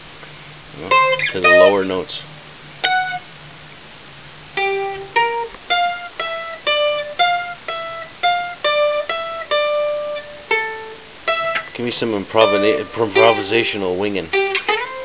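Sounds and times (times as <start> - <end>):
mandolin picked melody: 0.8 - 2.1, 4.6 - 15.0.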